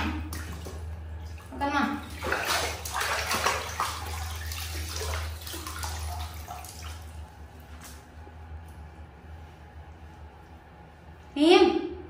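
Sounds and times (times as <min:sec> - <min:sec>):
water splashing in a bathtub: 0:00.0 - 0:08.8.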